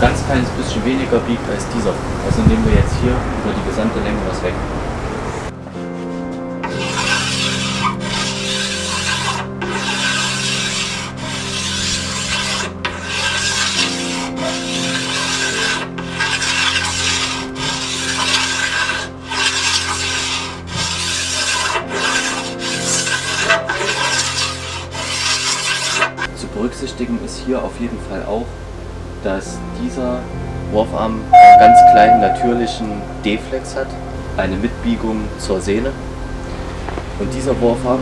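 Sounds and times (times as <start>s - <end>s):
rasp strokes on wood: 6.6s - 26.3s.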